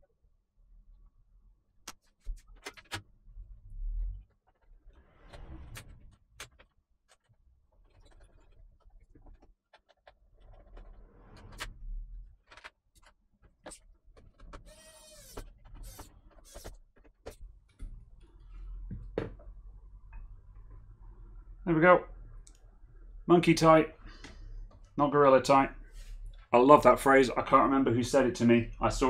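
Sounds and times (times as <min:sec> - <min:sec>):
clicks and knocks of plastic parts: 0:06.0 - 0:10.9.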